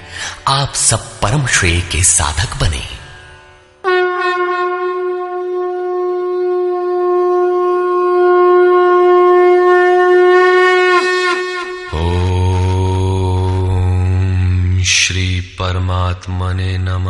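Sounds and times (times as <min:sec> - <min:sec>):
conch shell blown: 0:03.8 - 0:13.7.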